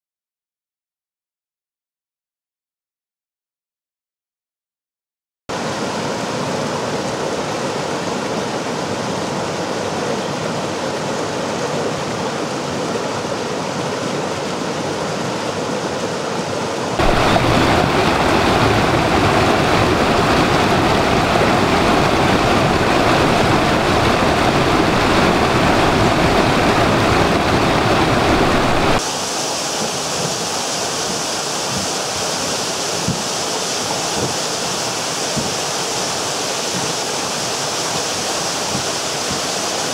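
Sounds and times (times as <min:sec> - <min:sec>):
stream rushing over rocks: 0:05.5 - 0:39.9
waterfall splashing: 0:05.5 - 0:39.9.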